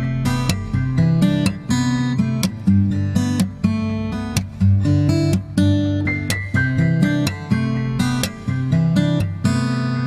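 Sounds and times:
strummed acoustic guitar: 0.0 - 10.0.

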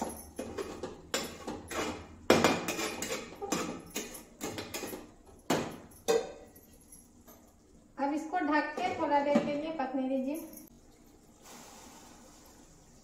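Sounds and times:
spatula scraping steel pan: 1.1 - 4.1.

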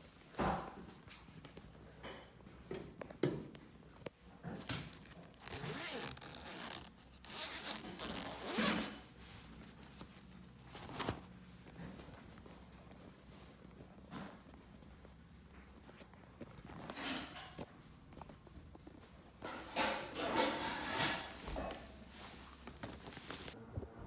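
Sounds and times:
zipper being pulled: 4.9 - 9.1.

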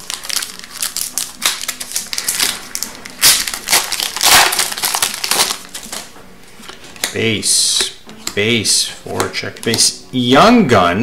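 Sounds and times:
foil wrapper crinkling: 0.0 - 6.1
cards pulled out: 0.0 - 10.0.

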